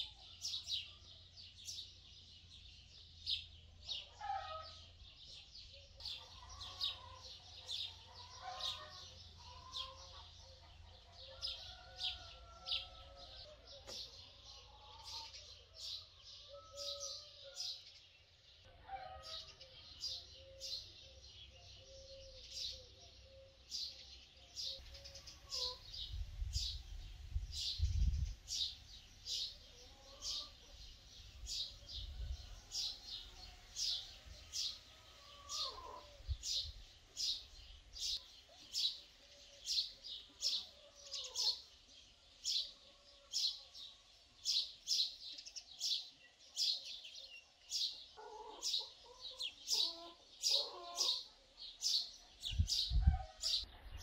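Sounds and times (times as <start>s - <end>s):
small birds chirping: 0.0s - 54.0s
lower wavering bird calls: 24.7s - 26.7s, 31.6s - 36.7s.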